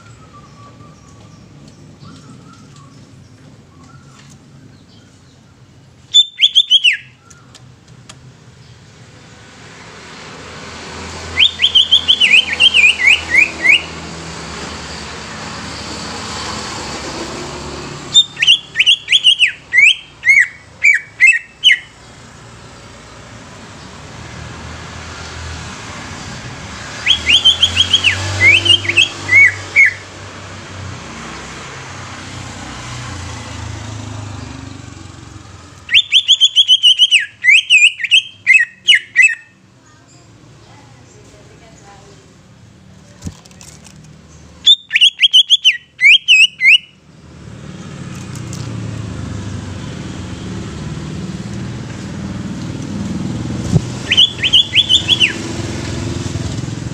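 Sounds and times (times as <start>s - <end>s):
bird whistling song: 0.0s - 7.6s, 11.3s - 14.0s, 18.1s - 22.0s, 26.9s - 30.1s, 35.6s - 39.6s, 44.6s - 47.0s, 54.0s - 55.6s.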